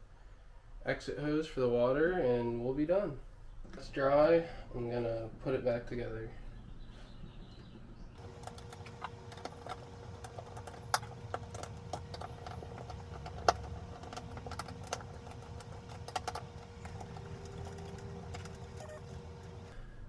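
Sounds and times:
steady hum: 0:07.8 - 0:20.0
hands clicking and tapping fittings: 0:08.2 - 0:19.7.

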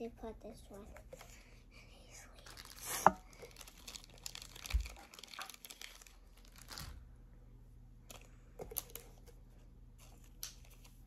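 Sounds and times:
plastic sleeve crinkling: 0:02.3 - 0:07.0.

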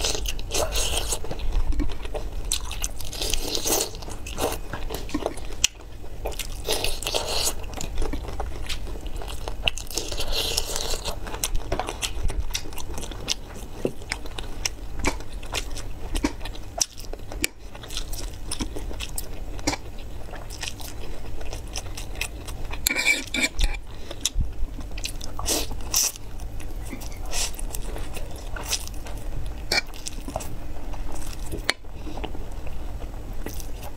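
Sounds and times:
crunching and chewing food: 0:00.0 - 0:33.9
steady low hum: 0:00.0 - 0:33.9
fork scraping metal tray: 0:22.8 - 0:23.8.

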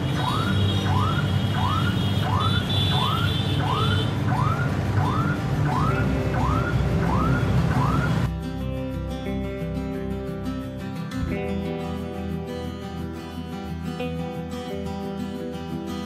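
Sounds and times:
electronic siren whooping: 0:00.0 - 0:08.3
low rumble of street traffic: 0:00.0 - 0:16.0.

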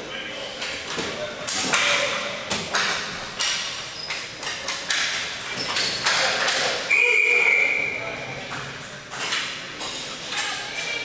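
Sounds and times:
hockey sticks clacking on ball: 0:00.6 - 0:06.9, 0:08.5 - 0:10.6
referee's whistle: 0:06.9 - 0:08.0.

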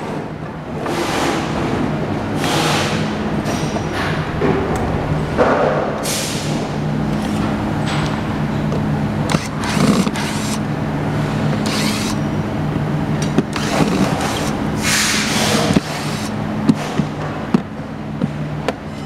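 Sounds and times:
low machine hum: 0:00.0 - 0:19.0
power screwdriver running: 0:09.3 - 0:10.6, 0:11.6 - 0:12.2, 0:13.5 - 0:14.6.

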